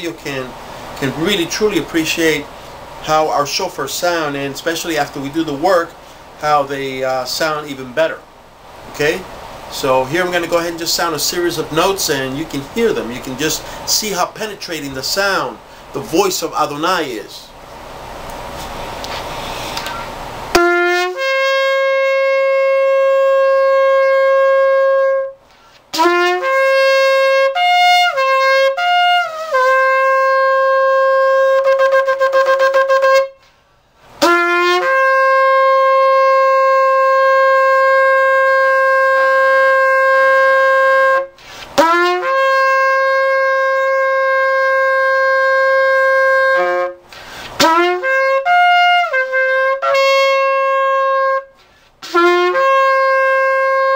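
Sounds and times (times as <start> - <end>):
shofar blasts: 20.5 - 33.6, 34.2 - 53.9.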